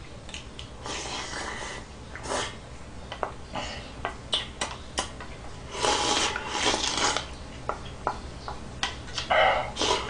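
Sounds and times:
slurping noodles: 5.7s - 7.3s, 9.8s - 10.0s.

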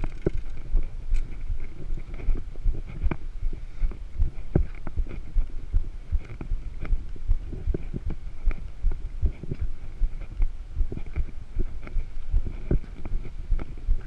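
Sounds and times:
bike jolting over concrete: 0.0s - 0.8s.

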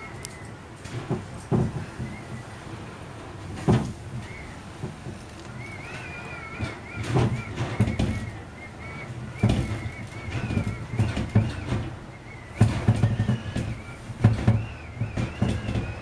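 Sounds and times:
faint high whistle-like tone: 5.6s - 16.0s.

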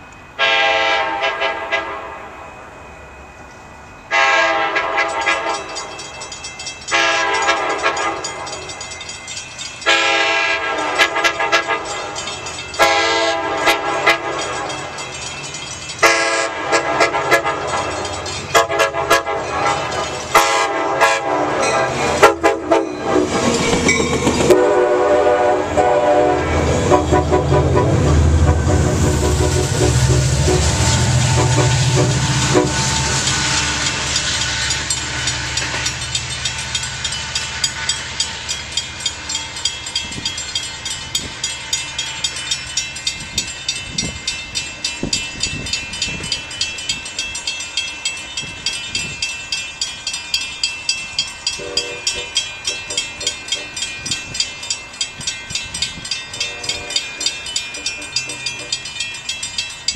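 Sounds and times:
low train rumble: 0.0s - 59.9s
train horn short toots: 0.4s - 2.3s, 4.1s - 5.7s, 6.9s - 8.4s, 9.9s - 12.0s, 12.8s - 14.6s, 16.0s - 23.3s, 24.4s - 33.2s, 51.6s - 53.3s, 56.4s - 57.4s
train horn blasts: 0.4s - 2.4s, 4.1s - 5.8s, 6.9s - 8.4s, 9.9s - 12.0s, 12.8s - 14.7s, 16.0s - 23.3s, 24.4s - 34.1s, 51.6s - 53.0s, 56.4s - 57.3s
train wheel clatter: 4.2s - 25.1s, 26.6s - 59.9s.

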